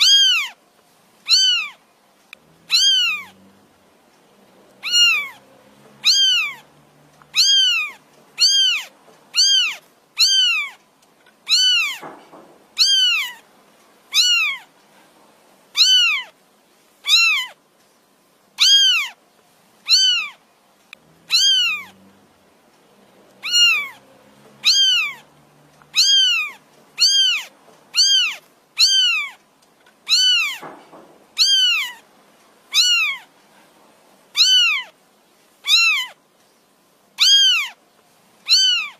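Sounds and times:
kitten meowing: 0.0s - 0.6s, 1.2s - 1.8s, 2.6s - 3.4s, 4.8s - 10.8s, 11.4s - 12.2s, 12.8s - 13.4s, 14.1s - 14.7s, 15.8s - 16.4s, 17.0s - 17.6s, 18.6s - 19.2s, 19.8s - 20.4s, 21.2s - 22.0s, 23.4s - 24.0s, 24.6s - 29.4s, 30.0s - 30.8s, 31.4s - 32.0s, 32.7s - 33.3s, 34.4s - 35.0s, 35.6s - 36.2s, 37.2s - 37.8s, 38.4s - 38.9s.

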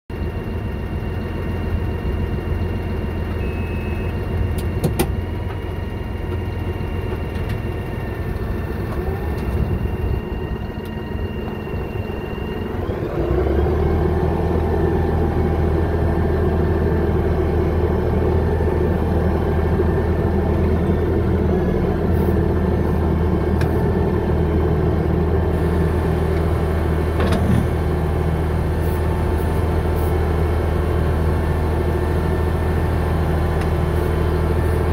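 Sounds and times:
machine engine idling and revving: 0.1s - 34.9s.

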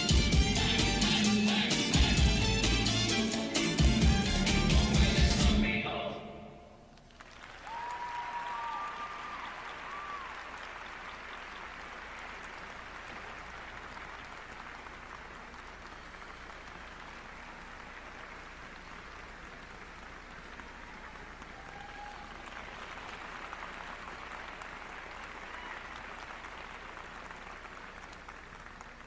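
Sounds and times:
audience applause: 7.0s - 29.0s.

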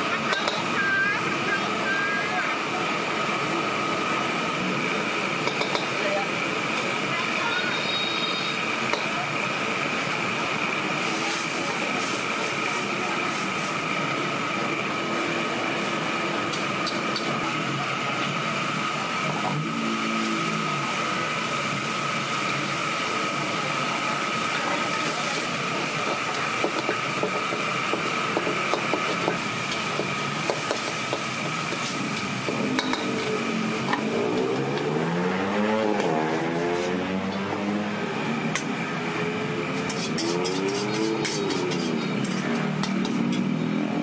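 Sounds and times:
food sizzling: 0.0s - 44.0s
metal spatula scraping wok: 24.7s - 34.6s, 39.7s - 43.7s.

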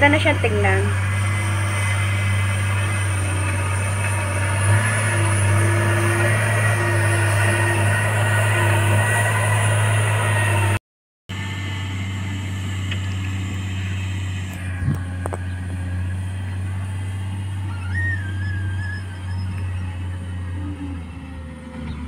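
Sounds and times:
distant diesel engine running: 0.0s - 22.0s.

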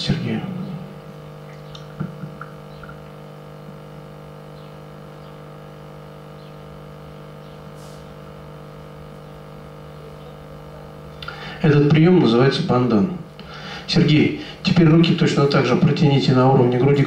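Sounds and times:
low electrical hum: 0.0s - 17.0s
faint brief hiss: 7.7s - 8.2s.

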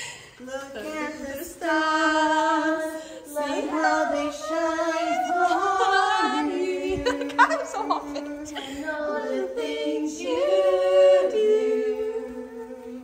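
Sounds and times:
woman singing unaccompanied: 0.4s - 13.0s.

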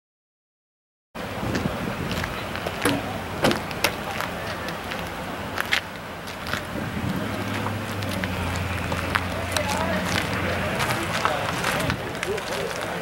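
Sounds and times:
sharp clicks and knocks: 2.8s - 4.0s.

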